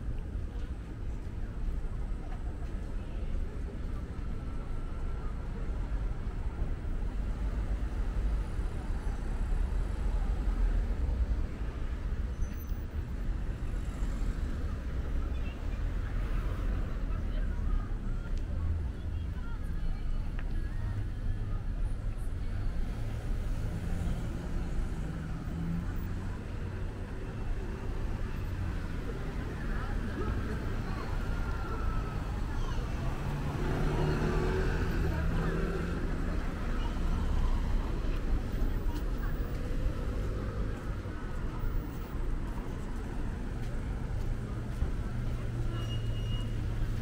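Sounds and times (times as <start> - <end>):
faint distant voices: 0.0 - 47.0
street traffic rumble: 0.0 - 47.0.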